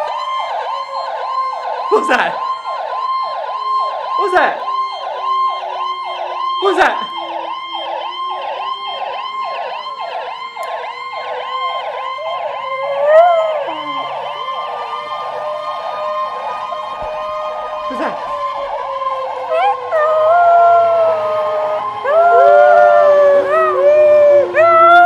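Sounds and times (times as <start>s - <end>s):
siren yelping: 0.0s - 25.0s
dog howling: 12.2s - 14.2s, 19.0s - 25.0s.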